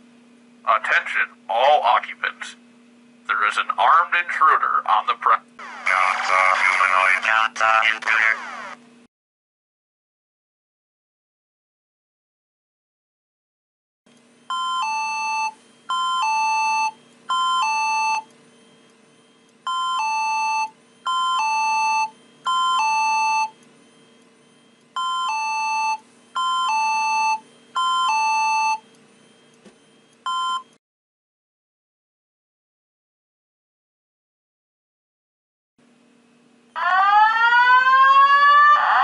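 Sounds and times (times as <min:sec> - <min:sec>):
faint steady hum: 0:00.0 - 0:09.1, 0:14.1 - 0:30.8
fire alarm hi-lo tone: 0:14.4 - 0:30.8, 0:36.8 - 0:39.0.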